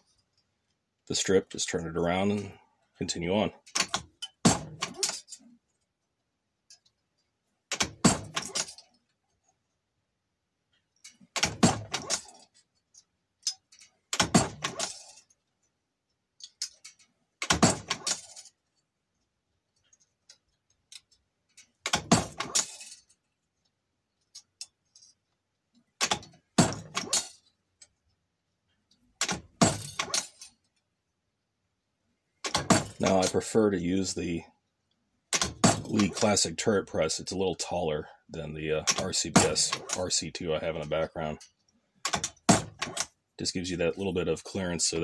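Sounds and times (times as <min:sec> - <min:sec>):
press metallic clunks and clicks: 0:29.2 - 0:30.4, 0:32.4 - 0:33.2, 0:35.3 - 0:36.3, 0:42.0 - 0:43.1.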